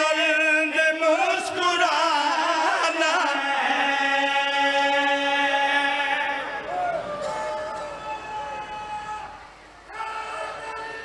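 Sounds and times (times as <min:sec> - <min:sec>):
men chanting devotional verse: 0:00.0 - 0:06.7.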